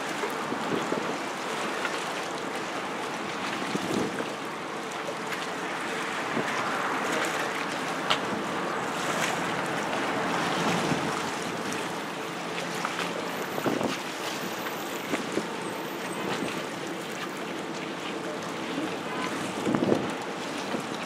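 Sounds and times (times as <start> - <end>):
faint boat engine hum: 0.0 - 21.0
waves lapping: 0.0 - 21.0
wind buffeting microphone: 19.5 - 20.9.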